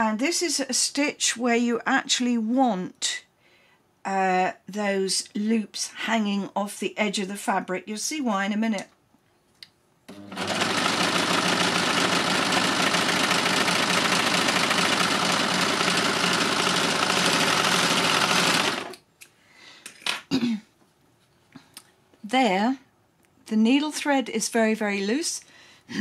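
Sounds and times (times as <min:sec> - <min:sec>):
overlocker sewing machine running: 0:10.1 - 0:19.0.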